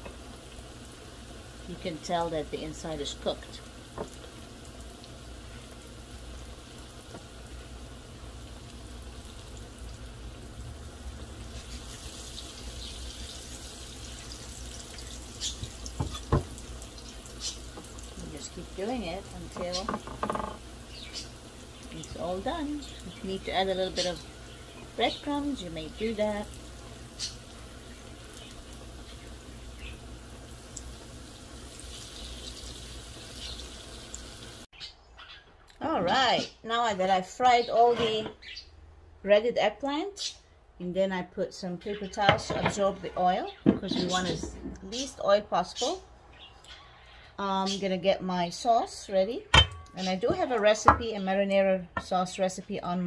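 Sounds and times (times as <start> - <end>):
slices frying in hot oil: 0.0 - 34.7.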